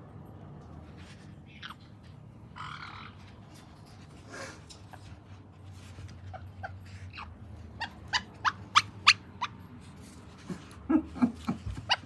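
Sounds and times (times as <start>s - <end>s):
dog yipping and whimpering: 1.5s - 3.3s, 6.2s - 9.7s, 10.5s - 12.0s.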